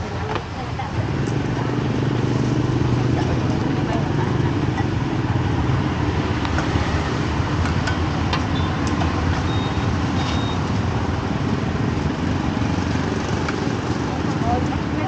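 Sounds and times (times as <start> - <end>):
street traffic rumble: 0.0 - 15.0
short high beeps: 8.5 - 8.8, 9.4 - 10.6.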